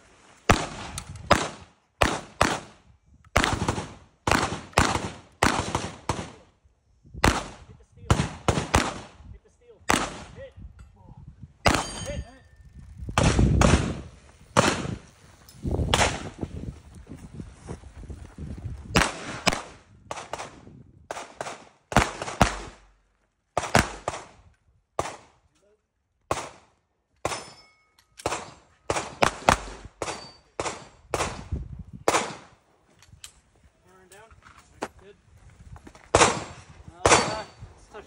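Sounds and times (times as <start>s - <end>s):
gunshots: 0.5s - 2.8s, 3.4s - 6.4s, 7.2s - 9.2s, 9.9s - 10.4s, 11.7s - 12.2s, 13.2s - 15.0s, 15.9s - 16.3s, 19.0s - 22.9s, 23.6s - 24.4s, 28.2s - 32.5s, 36.1s - 37.6s.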